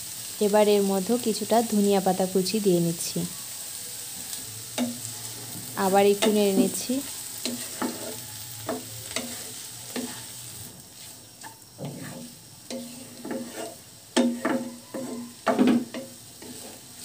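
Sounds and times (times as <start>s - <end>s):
light sizzle of frying: 0.0s - 17.0s
spatula scraping frying pan: 4.7s - 17.0s.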